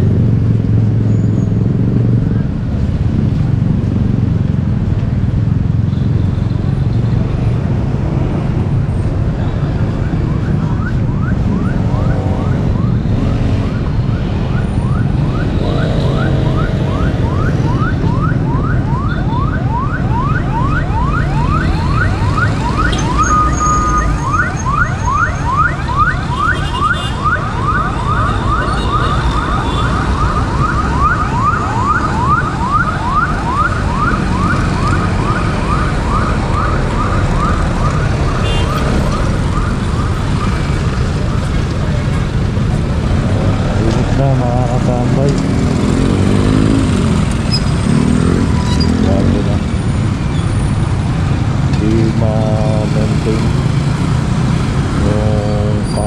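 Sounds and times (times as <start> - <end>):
low rumble of street traffic: 0.0 - 56.0
siren yelping: 9.5 - 41.5.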